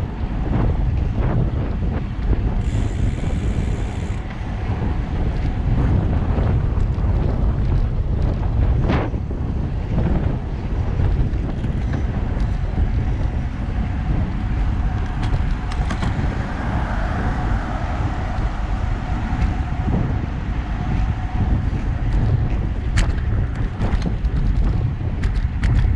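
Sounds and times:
bicycle road noise: 0.0 - 25.9
wind buffeting microphone: 0.0 - 25.9.

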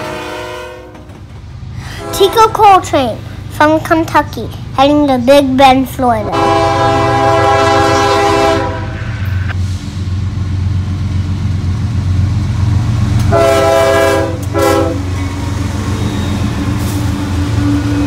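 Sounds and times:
locomotive air horn: 0.0 - 1.1, 1.9 - 2.3, 6.3 - 9.2, 13.3 - 15.1
diesel locomotives rumbling past: 0.0 - 18.0.

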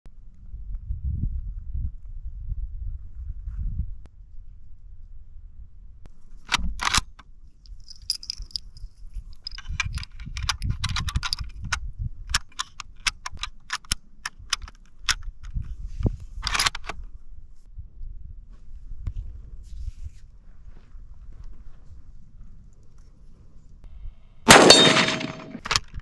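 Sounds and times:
wind rumble on microphone: 0.1 - 6.8, 7.7 - 12.6, 14.4 - 24.2
rifle bolt clacking: 24.5 - 25.9.

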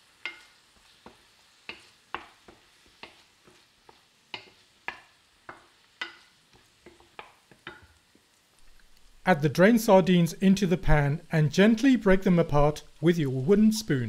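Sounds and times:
vegetables sizzling in oil: 0.0 - 14.0
wooden spoon scraping a pan: 0.1 - 7.9.

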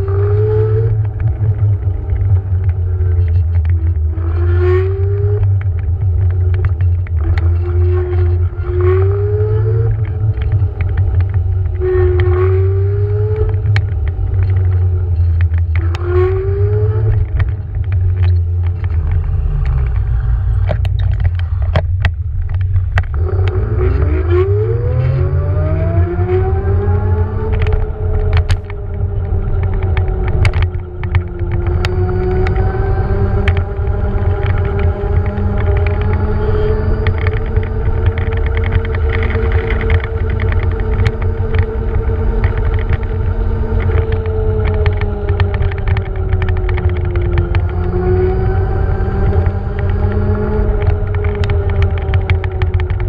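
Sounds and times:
wind and road rumble: 0.0 - 53.0
electric scooter motor whining: 22.9 - 53.0.

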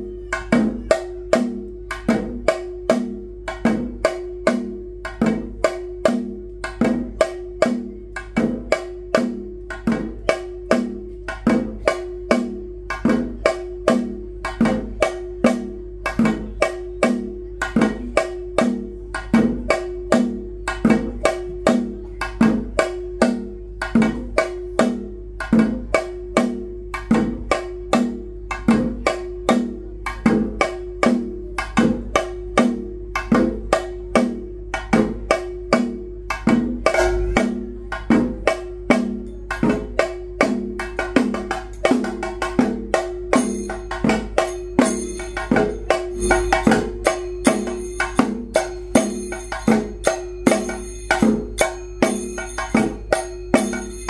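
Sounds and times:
steady drumming: 0.0 - 54.0
held tone: 43.5 - 54.0
high ringing tone: 43.5 - 54.0.

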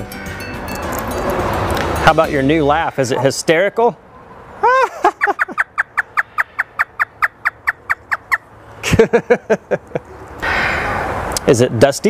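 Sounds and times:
parrot mimicking human laugh: 4.6 - 8.3.

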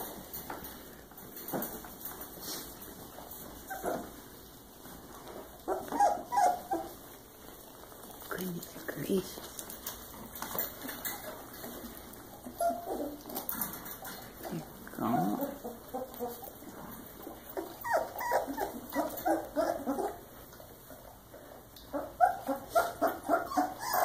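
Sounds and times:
puppies whimpering and squeaking: 3.3 - 4.5, 5.2 - 7.9, 9.9 - 24.0.

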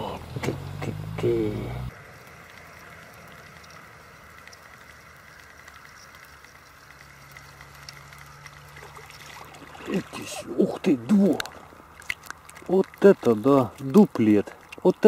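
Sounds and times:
fishing reel whirring and ticking: 2.2 - 9.4.

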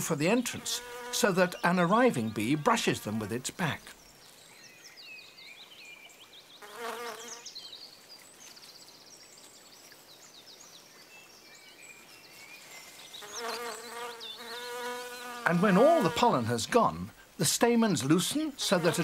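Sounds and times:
bumblebee buzzing: 0.6 - 2.7, 6.6 - 7.4, 13.2 - 16.4, 18.6 - 19.0.

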